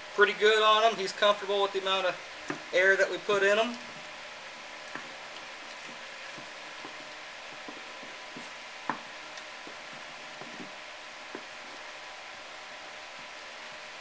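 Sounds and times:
steady hiss: 0.0 - 14.0
rubber balls knocking and rubbing: 4.8 - 11.9.

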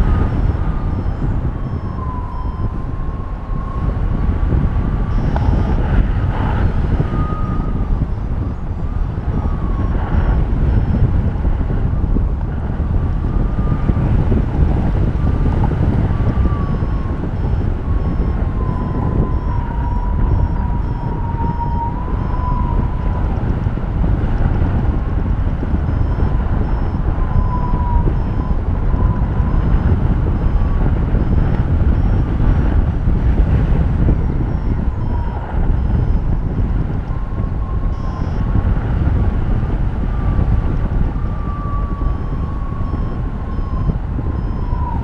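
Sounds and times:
faint wavering whistle: 0.0 - 4.0, 5.0 - 11.0, 16.1 - 23.4, 25.8 - 32.3, 34.2 - 38.6, 41.2 - 45.0
wind rushing over microphone: 0.0 - 45.0.

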